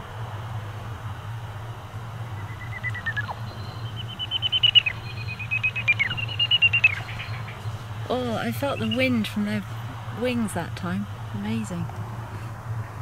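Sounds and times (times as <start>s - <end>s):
low steady hum: 0.0s - 13.0s
bat detector rapid beeps: 2.3s - 7.7s, 8.5s - 9.2s.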